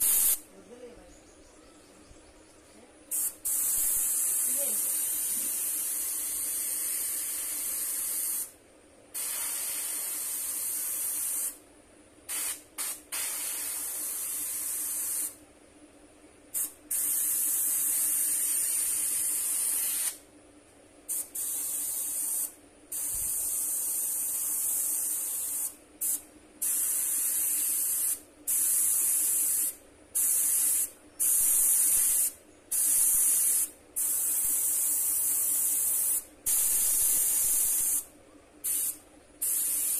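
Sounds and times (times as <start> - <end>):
airbrush spraying hiss: 0.0 - 0.5, 3.1 - 8.6, 9.2 - 11.6, 12.3 - 15.4, 16.5 - 20.2, 21.1 - 39.9
faint steady hum: 10.0 - 39.9.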